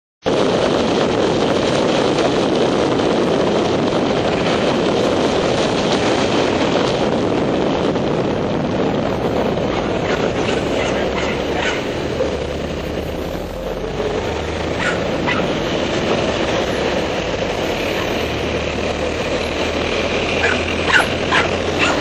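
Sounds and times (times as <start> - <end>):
wind buffeting microphone: 0.2 - 22.0.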